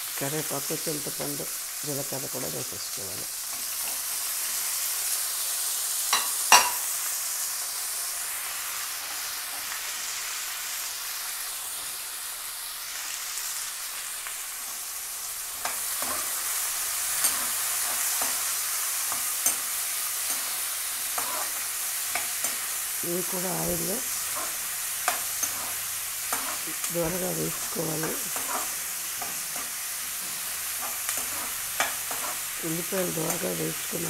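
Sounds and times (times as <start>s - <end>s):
onions sizzling in hot oil: 0.0s - 34.0s
metal spoon scraping a pan: 15.6s - 22.8s, 23.6s - 33.6s.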